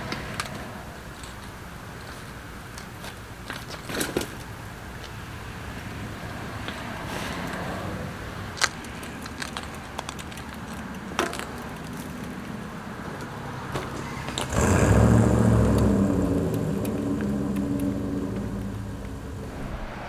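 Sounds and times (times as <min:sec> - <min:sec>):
bicycle clicks and knocks: 0:00.1 - 0:05.2, 0:08.5 - 0:14.5
vehicle engine driving past: 0:14.0 - 0:20.0.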